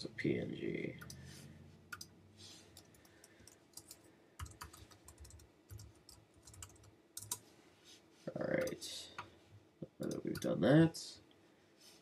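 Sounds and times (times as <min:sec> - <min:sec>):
typing on computer keyboard: 0:02.8 - 0:07.4.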